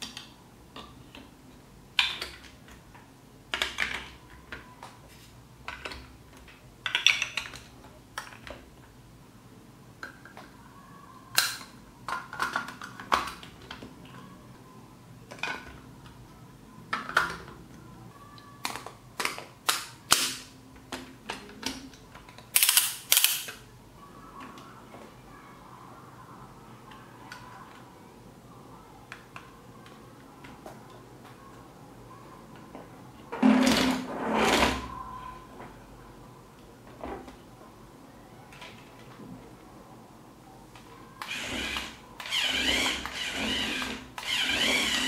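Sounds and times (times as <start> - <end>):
plastic blocks snapping together: 11.3 - 13.8.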